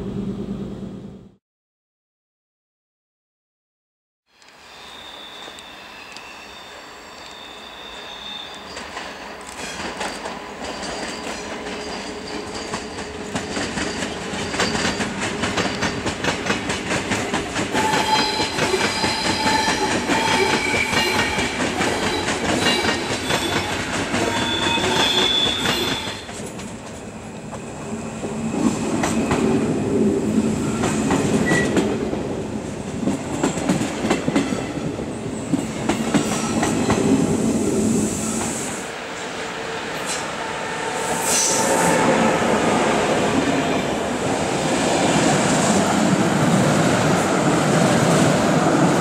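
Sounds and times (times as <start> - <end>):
electric train rumble: 0.0 - 1.4, 8.5 - 49.0
high squealing tones: 4.5 - 9.8.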